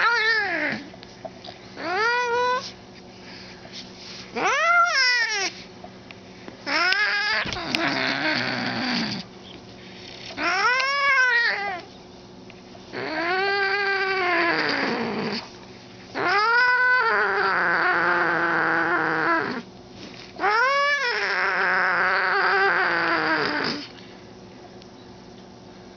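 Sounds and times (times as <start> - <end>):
cat yowling: 0.0 - 0.9, 1.8 - 2.7, 4.4 - 5.6, 6.7 - 9.2, 10.4 - 11.9, 12.9 - 15.4, 16.2 - 19.6, 20.4 - 23.9.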